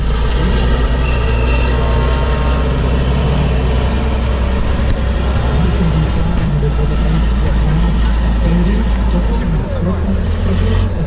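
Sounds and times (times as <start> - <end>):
truck diesel engine under load: 0.0 - 11.0.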